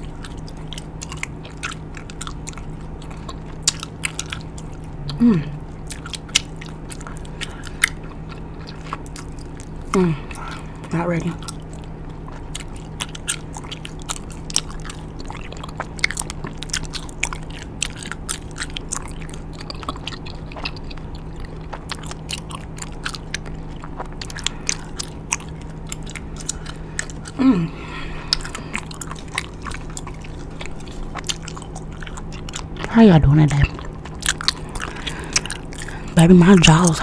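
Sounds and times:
wet gum chewing: 0.0 - 37.0
low falling vocal sound: 4.9 - 5.8.

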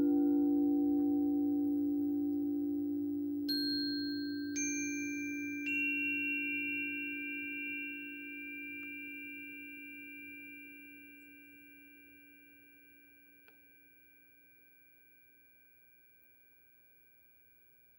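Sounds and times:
singing bowl and chime tones: 0.0 - 15.4.

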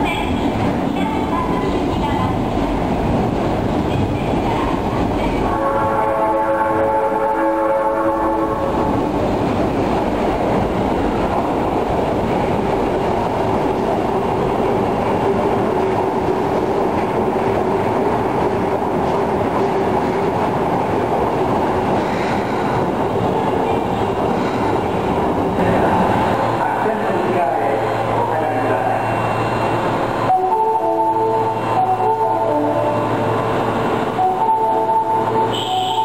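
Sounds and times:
train rumbling into station: 0.0 - 36.0
train horn tone: 5.4 - 8.9, 30.3 - 33.2, 34.2 - 36.0.

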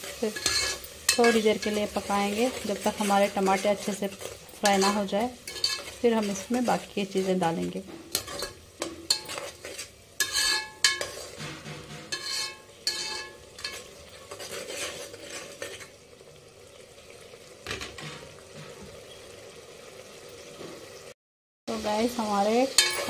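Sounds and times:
spoon scraping metal pot: 0.0 - 16.0, 22.8 - 23.0
tomatoes sizzling in oil: 0.0 - 23.0
spoon clinking on pot: 4.2 - 6.0, 8.2 - 13.9, 22.8 - 23.0.

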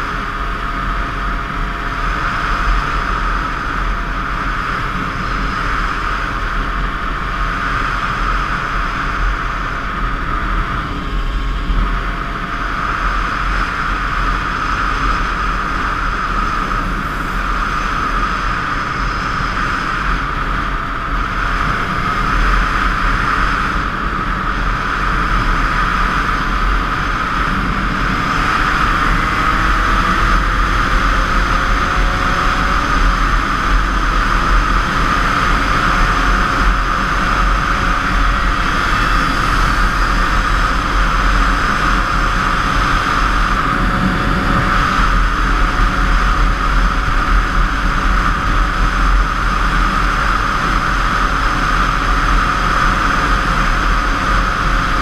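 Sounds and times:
motorcycle engine: 0.0 - 55.0
wind rush: 0.0 - 55.0.

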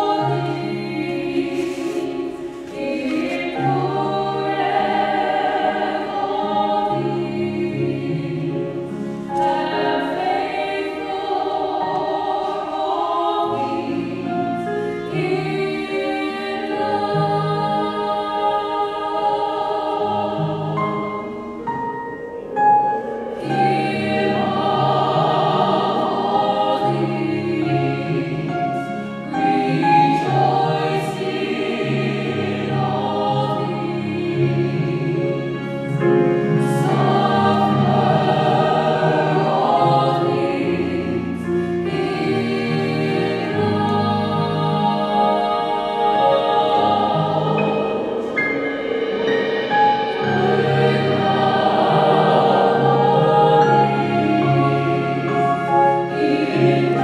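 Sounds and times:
mixed-voice choir singing: 0.0 - 57.0.

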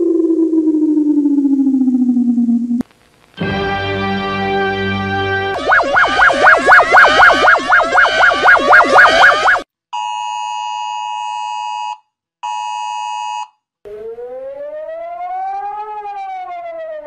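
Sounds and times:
rising and falling siren: 0.0 - 2.8, 5.5 - 9.6, 13.9 - 17.0
fast-warbling phone alarm: 5.6 - 10.3.

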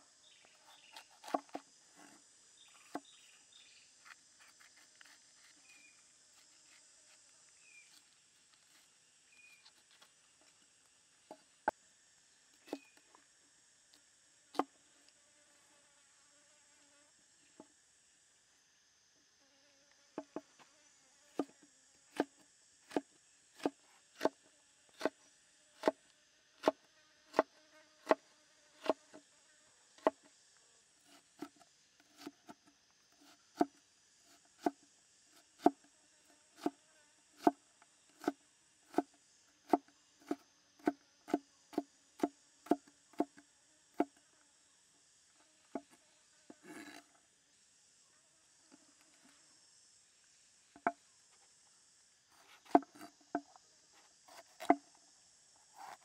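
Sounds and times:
high insect buzz: 0.0 - 56.0
knife chopping on wooden board: 0.9 - 1.6, 26.6 - 28.2, 52.6 - 53.5, 54.3 - 54.8.

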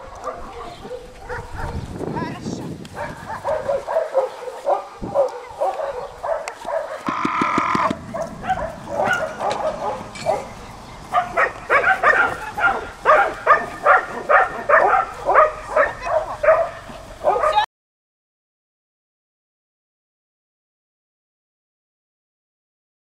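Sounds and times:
dog barking: 0.0 - 1.9, 2.9 - 17.7.

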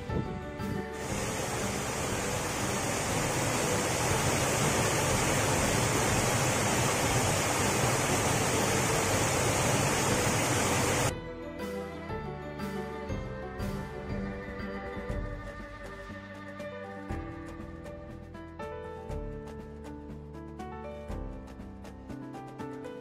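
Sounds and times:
stream rushing over rocks: 1.0 - 11.1.

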